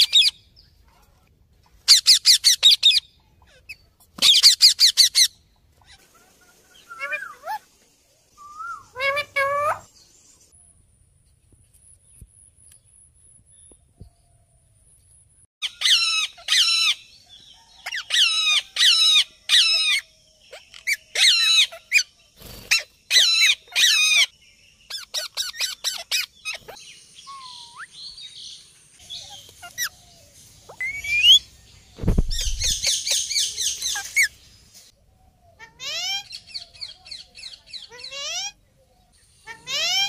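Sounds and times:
parakeets squawking: 8.6 - 9.9, 29.1 - 30.0
dull thumps: 32.0 - 32.7.

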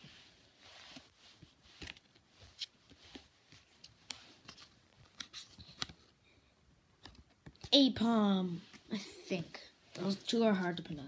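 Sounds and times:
cards rustling: 0.9 - 6.2.

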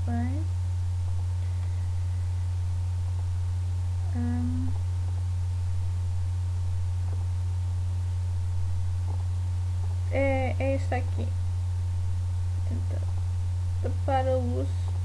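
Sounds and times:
low electrical hum: 0.0 - 15.0
woman humming: 4.0 - 4.8.

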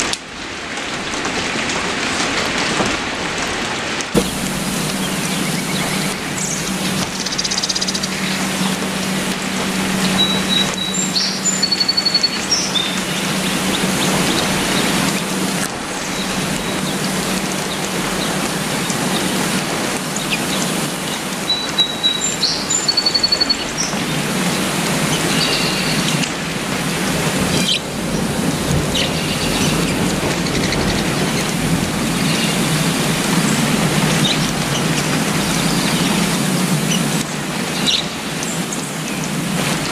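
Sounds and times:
rain falling on foliage: 0.0 - 39.9
bird chirping: 4.2 - 17.8, 21.5 - 24.0.

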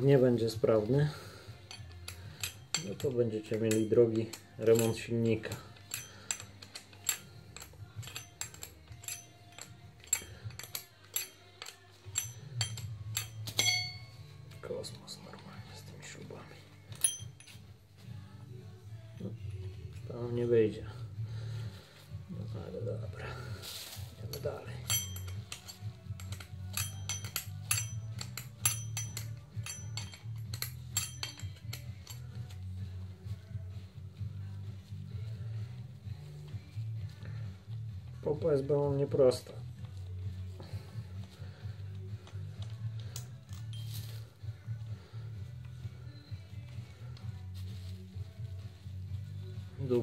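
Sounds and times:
background music: 0.0 - 50.0
wrench clicking on metal bolts: 1.6 - 14.1, 16.9 - 17.5, 24.3 - 32.5.

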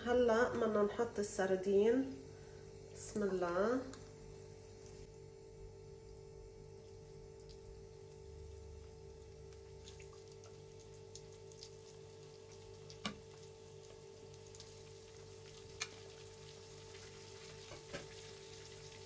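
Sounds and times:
oil sizzling with pops: 6.1 - 19.0.

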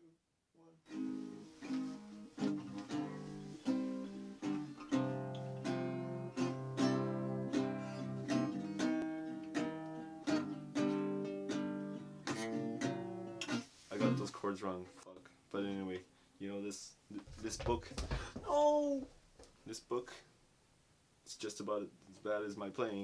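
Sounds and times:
guitar chords strummed: 0.9 - 14.3.

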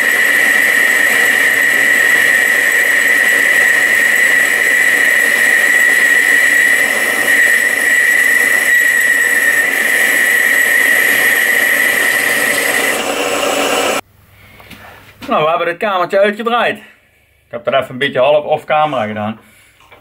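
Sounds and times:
lathe cutting metal: 0.0 - 14.0
high whine: 0.0 - 14.1.

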